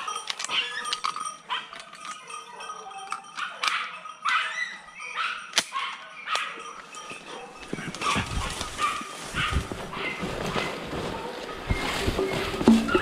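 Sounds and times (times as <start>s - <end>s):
dogs barking: 0.0s - 12.0s
leaves and twigs rustling and snapping: 7.6s - 13.0s.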